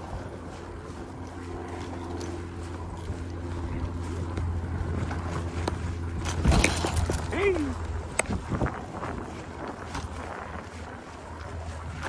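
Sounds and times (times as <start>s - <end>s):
wind buffeting microphone: 0.0s - 12.0s
bike rattling over bumps: 1.8s - 12.0s
tyre rumble on dirt: 4.2s - 7.7s.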